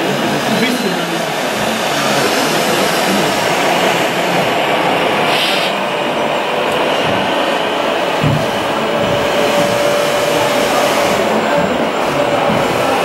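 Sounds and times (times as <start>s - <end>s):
short hiss: 5.3s - 5.8s
model trucks mechanical running: 6.7s - 13.0s.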